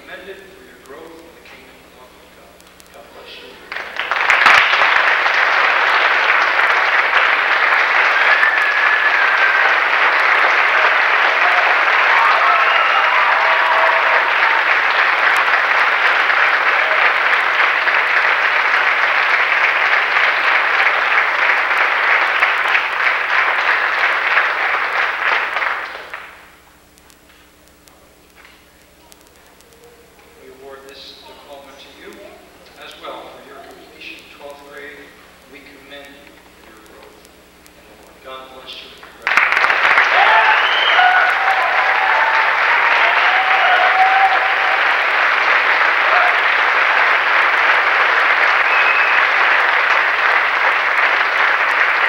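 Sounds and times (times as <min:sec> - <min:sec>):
audience applauding: 0:03.4 - 0:26.6, 0:39.0 - 0:52.0.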